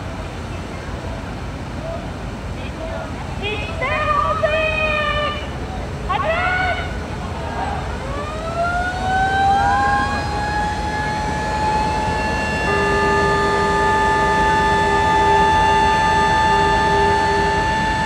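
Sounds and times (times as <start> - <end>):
constant rushing noise: 0.0 - 18.0
fire sirens wailing: 7.8 - 18.0
low steady horn tone: 9.5 - 18.0.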